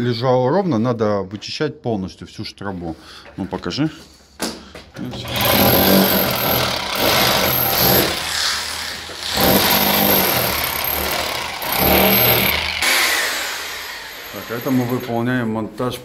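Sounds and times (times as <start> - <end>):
high motor whine: 5.2 - 15.1
rotary hammer chipping wall: 5.2 - 15.1.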